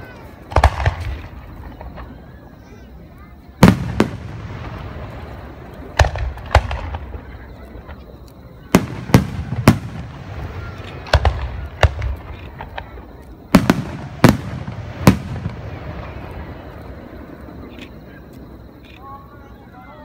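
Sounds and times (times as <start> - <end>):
firework shells booming: 0.4 - 2.5, 3.6 - 8.0, 8.6 - 17.7.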